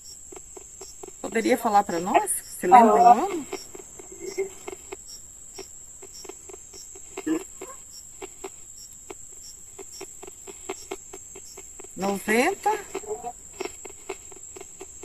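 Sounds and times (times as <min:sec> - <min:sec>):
crickets chirring: 0:00.0 - 0:15.0
radio static bursts chopping: 0:00.0 - 0:15.0
voice-like radio snippet: 0:01.2 - 0:04.6.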